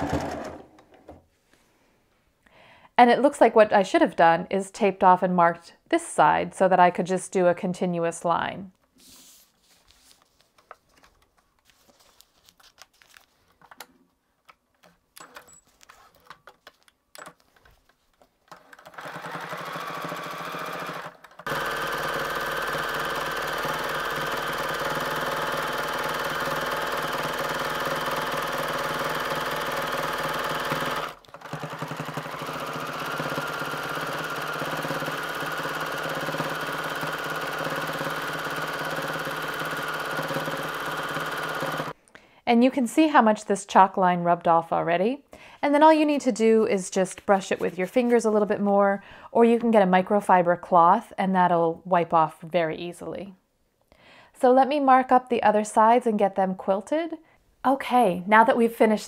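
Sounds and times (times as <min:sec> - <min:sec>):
sewing machine stitching: 0:00.0 - 0:01.2, 0:18.5 - 0:42.0.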